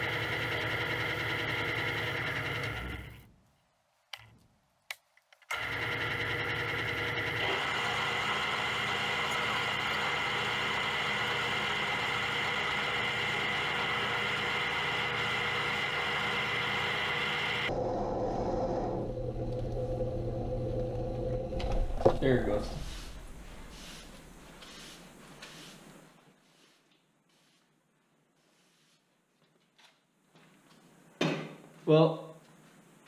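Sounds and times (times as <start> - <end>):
metal lathe whirring: 5.5 - 22.2
high gear whine: 5.5 - 23.7.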